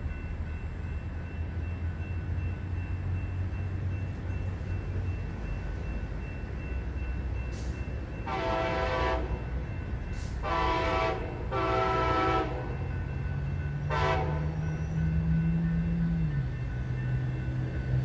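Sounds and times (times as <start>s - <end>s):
low rumble of train: 0.0s - 18.0s
train horn blasts: 8.2s - 9.6s, 10.3s - 12.9s, 13.8s - 14.6s.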